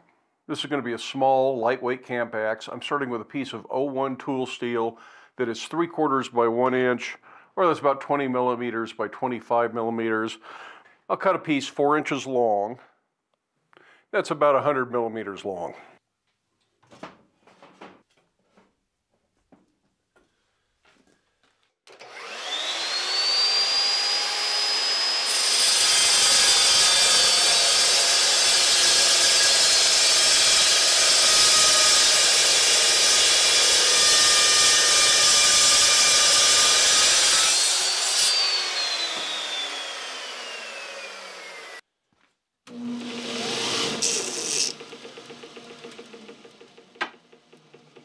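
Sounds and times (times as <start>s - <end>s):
power saw cutting steel: 22.0s - 41.8s, 42.7s - 48.0s
belt grinder running: 42.7s - 48.0s.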